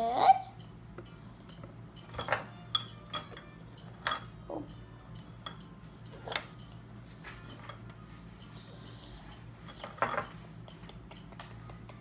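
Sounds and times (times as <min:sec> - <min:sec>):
pencils clinking against glass: 0:02.0 - 0:04.3.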